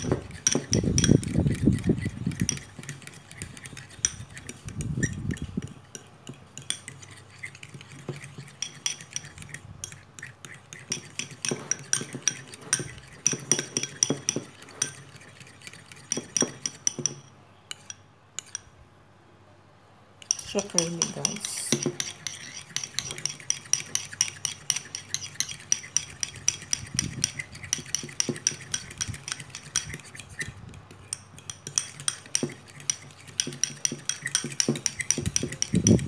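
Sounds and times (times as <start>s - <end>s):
fork clinking against bowl: 0.0s - 18.7s, 20.2s - 36.0s
wet stirring: 0.0s - 18.7s, 20.2s - 36.0s.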